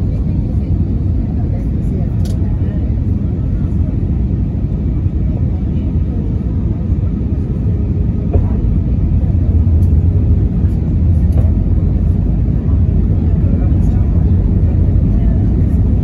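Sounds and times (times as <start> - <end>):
aircraft cabin engine rumble: 0.0 - 16.0.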